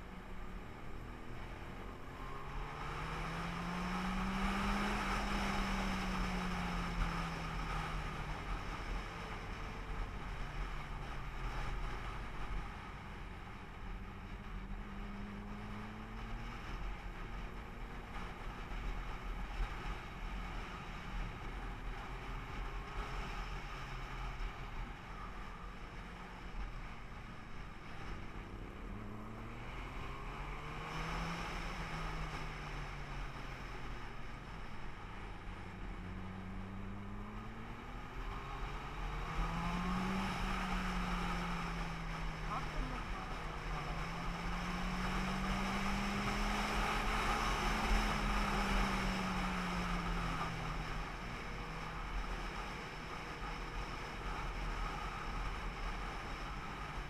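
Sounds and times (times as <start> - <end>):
vehicle engine running: 0.0 - 57.0.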